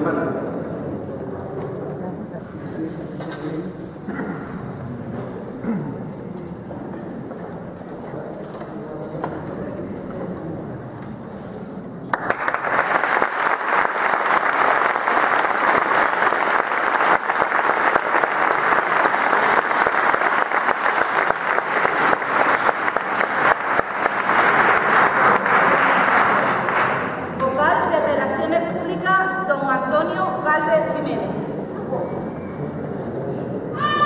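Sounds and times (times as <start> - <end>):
audience applauding: 12.1 - 27.4.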